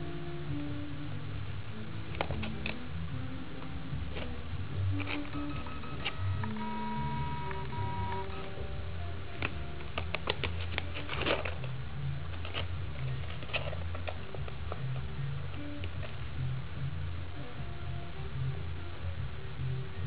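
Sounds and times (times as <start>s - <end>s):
background music with held notes: 0.0s - 20.0s
paper bag crackling: 10.2s - 11.7s.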